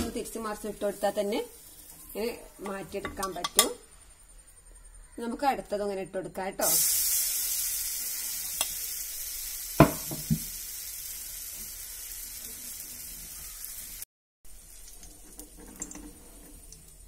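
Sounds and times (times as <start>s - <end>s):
ghee sizzling in a pan: 0.0s - 4.3s, 6.6s - 17.0s
metal spoon clinking in pan: 3.0s - 3.8s.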